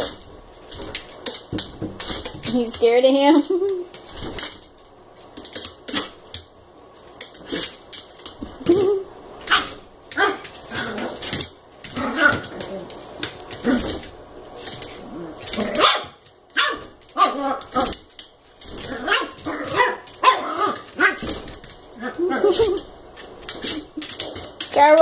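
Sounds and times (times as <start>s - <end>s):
puppy barking: 9.5s - 10.9s, 15.7s - 17.9s, 18.9s - 21.3s.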